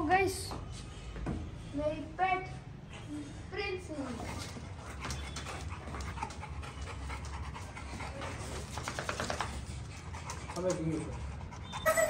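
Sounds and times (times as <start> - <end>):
dog panting: 3.6 - 12.0.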